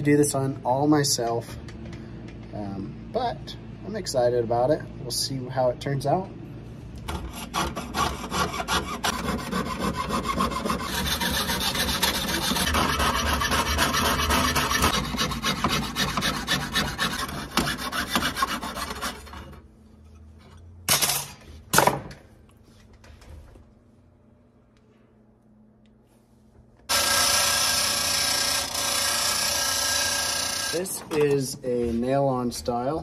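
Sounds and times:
saw rasping through metal: 0:07.1 - 0:19.6, 0:26.9 - 0:30.9.

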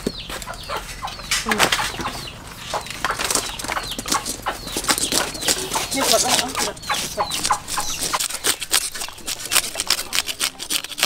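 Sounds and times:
chickens clucking: 0:00.0 - 0:11.0
chicks peeping: 0:00.0 - 0:11.0
knife scraping on chopping block: 0:04.1 - 0:11.0.

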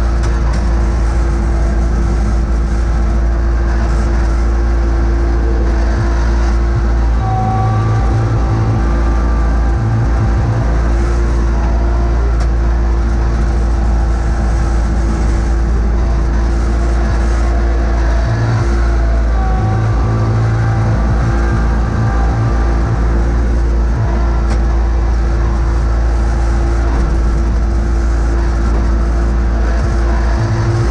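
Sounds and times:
garden tractor engine rumbling: 0:00.0 - 0:30.9
brief higher tone: 0:07.1 - 0:12.3.

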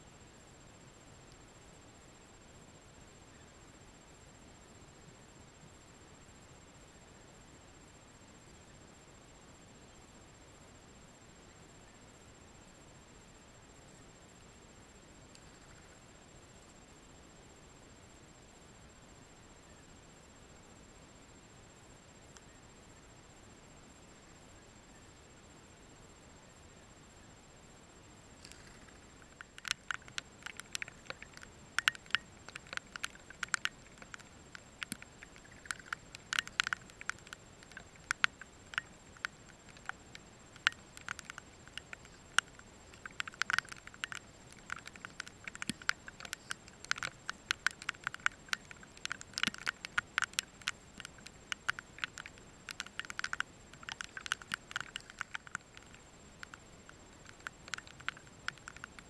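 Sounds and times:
birds making quick clicks: 0:28.4 - 0:59.0.

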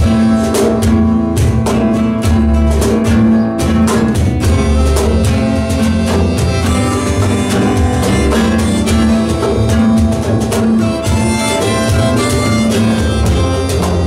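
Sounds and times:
cajon beat: 0:00.0 - 0:14.0
double bass: 0:00.0 - 0:14.0
strummed acoustic guitar: 0:00.0 - 0:14.0
harmonica long notes: 0:04.5 - 0:14.0.

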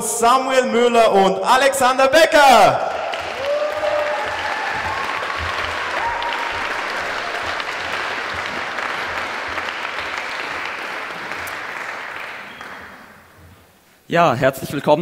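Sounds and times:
audience clapping and cheering: 0:02.5 - 0:13.4
shouts from audience: 0:02.6 - 0:07.6.

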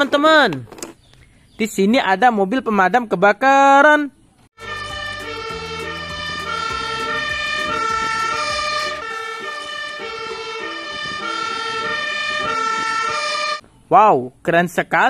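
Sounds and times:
fire engine two-tone siren: 0:04.6 - 0:13.6
truck engine running: 0:04.6 - 0:13.6.

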